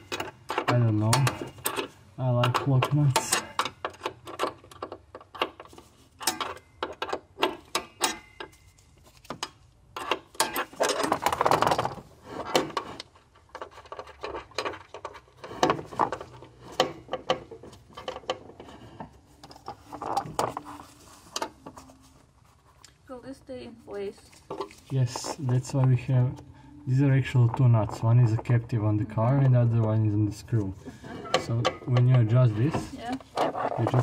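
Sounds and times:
scraping rustle: 0:10.6 - 0:22.8.

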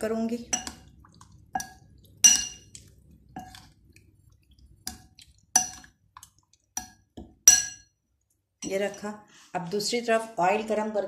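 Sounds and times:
metal spoon clinking on glass bowl: 0:01.6 - 0:02.7, 0:06.8 - 0:07.9.

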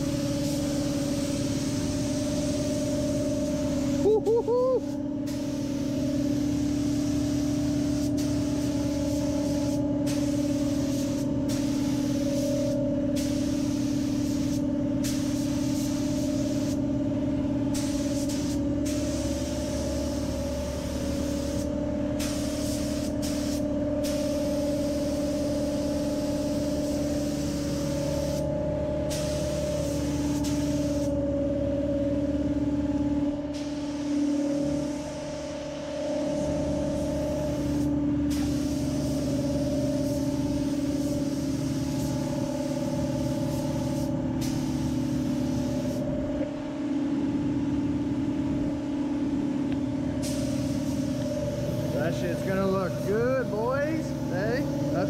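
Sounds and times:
paint spray gun hissing: 0:00.0 - 0:31.2, 0:36.6 - 0:46.2, 0:50.2 - 0:55.0
steady mechanical hum: 0:00.0 - 0:55.0.

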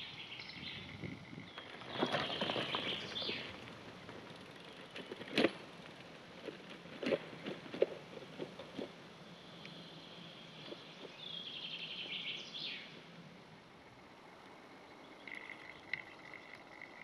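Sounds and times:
bicycle tyres crackling over leaves: 0:01.5 - 0:08.9.

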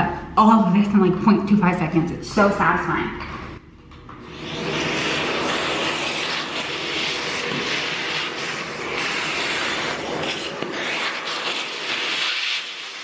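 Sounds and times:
vacuum cleaner whine: 0:04.1 - 0:13.0.

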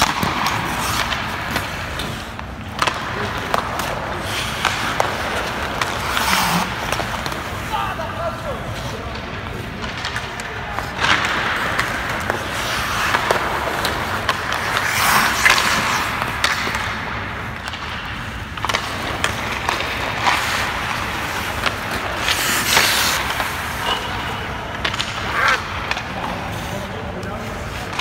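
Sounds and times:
pads and stick knocking ice: 0:00.0 - 0:07.8, 0:09.8 - 0:26.2
skate blades scraping on ice: 0:00.0 - 0:28.0.

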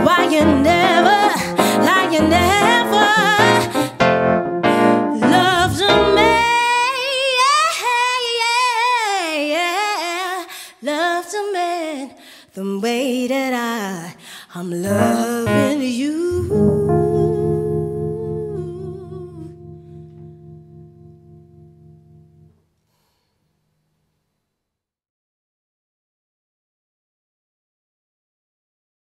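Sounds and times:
woman singing with vibrato: 0:00.0 - 0:04.0, 0:04.7 - 0:20.6
piano chords: 0:00.0 - 0:06.6, 0:14.9 - 0:22.5.

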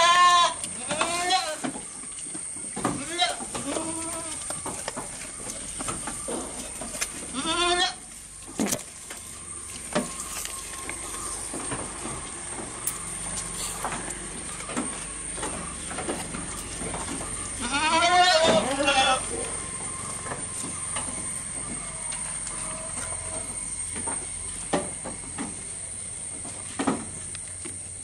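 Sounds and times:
goat bleating: 0:00.0 - 0:01.7, 0:02.9 - 0:04.5, 0:07.0 - 0:08.2, 0:17.4 - 0:19.7
goats chewing grass: 0:00.0 - 0:28.0.

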